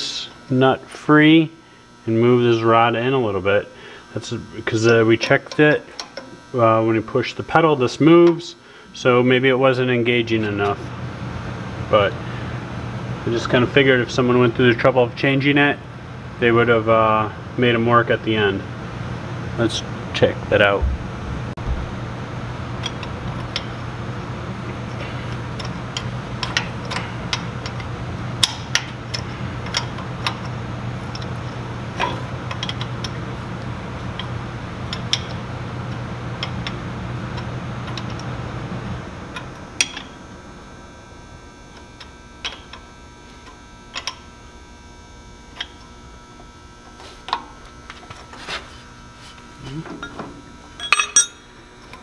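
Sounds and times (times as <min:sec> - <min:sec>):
steady mechanical hum: 0:00.0 - 0:52.0
wrench clinking on metal: 0:50.8 - 0:51.5.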